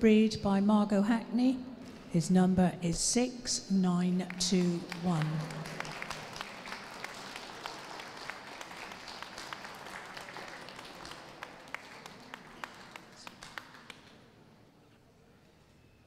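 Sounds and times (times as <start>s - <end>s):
audience applauding: 4.6s - 14.4s.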